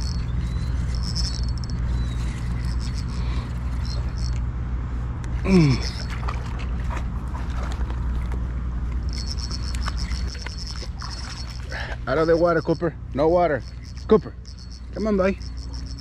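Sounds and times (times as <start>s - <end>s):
insects chirping in pulses: 0.0s - 4.4s, 9.1s - 16.0s
steady low hum: 0.0s - 16.0s.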